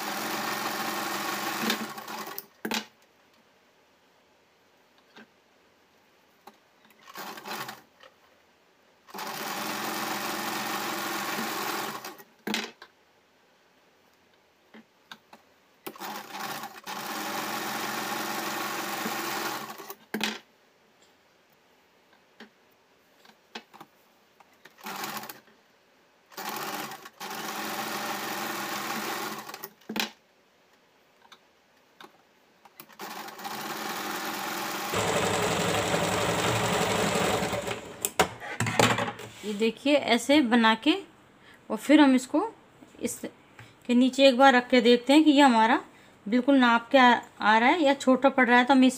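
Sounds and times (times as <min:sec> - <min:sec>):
sewing machine stitching: 0:00.0 - 0:02.4, 0:07.0 - 0:07.8, 0:09.1 - 0:12.3, 0:15.9 - 0:20.0, 0:24.7 - 0:25.4, 0:26.3 - 0:29.7, 0:32.8 - 0:38.2.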